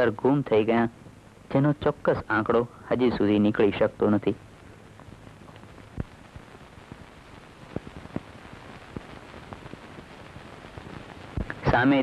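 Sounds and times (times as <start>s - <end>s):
faint low hum: 0.0s - 12.0s
recording hiss: 0.0s - 12.0s
clicks and crackles: 4.8s - 11.7s.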